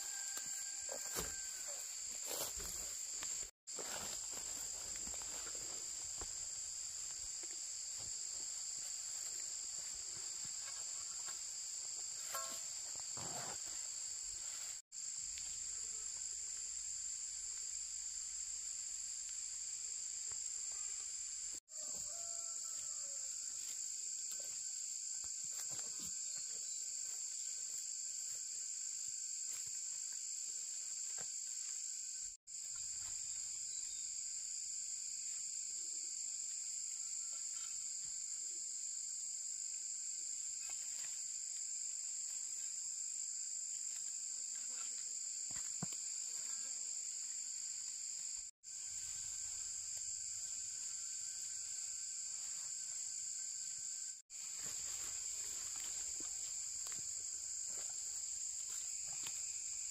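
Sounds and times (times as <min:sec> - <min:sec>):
insects buzzing: 0:00.0 - 0:59.9.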